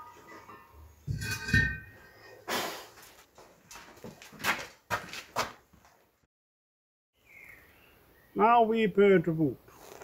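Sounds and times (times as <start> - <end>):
gas bottle rustling scraping knocks: 0.5 - 2.0.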